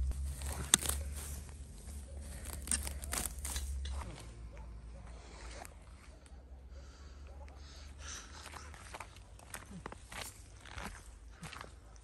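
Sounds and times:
plant stems being torn: 0.0 - 1.5, 2.2 - 4.2
leaves rustling: 0.0 - 4.2
crisp stem snaps: 2.4 - 4.0.

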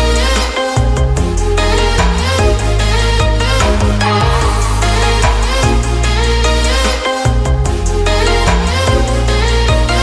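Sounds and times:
electronic music with strong bass: 0.0 - 10.0.

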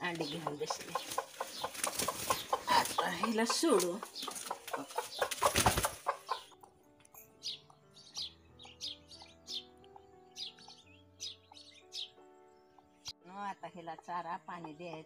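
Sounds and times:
hen beating wings: 0.0 - 6.6
high bird chirps: 0.0 - 13.2
soft background music: 0.0 - 15.0.

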